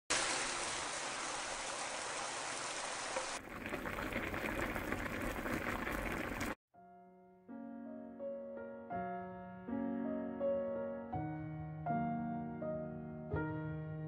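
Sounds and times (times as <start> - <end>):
stew boiling and bubbling: 0.1 - 6.6.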